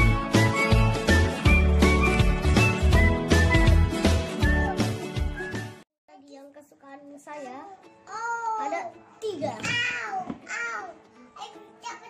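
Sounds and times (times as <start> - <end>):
background music with bass line: 0.0 - 5.8.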